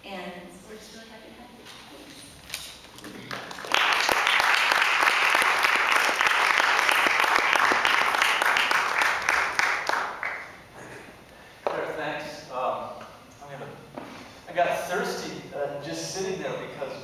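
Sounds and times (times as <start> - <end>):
audience applauding: 3.0 - 10.7.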